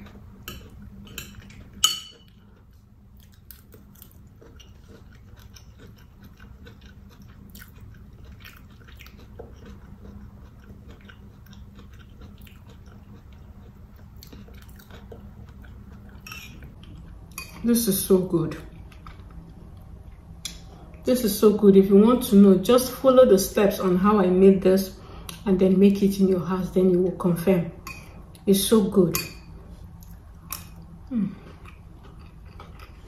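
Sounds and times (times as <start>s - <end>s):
steady low hum: 0.0s - 33.0s
close chewing with wet mouth clicks: 2.4s - 17.1s, 31.4s - 33.0s.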